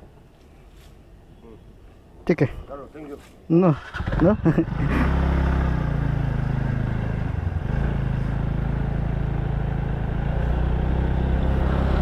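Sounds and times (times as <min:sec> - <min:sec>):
small motorbike engine pulling away: 0:03.8 - 0:12.0.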